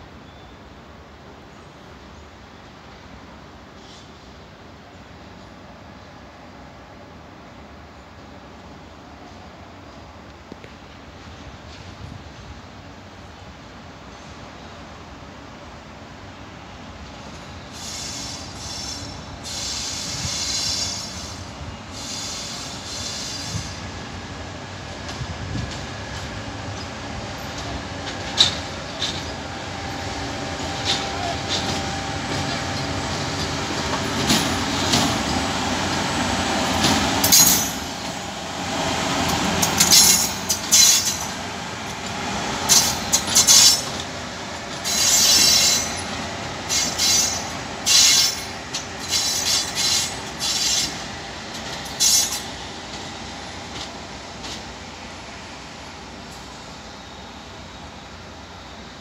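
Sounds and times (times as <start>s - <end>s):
locomotive rumbling past: 16.7s - 59.0s
wheels squealing: 39.3s - 41.4s, 42.7s - 52.6s.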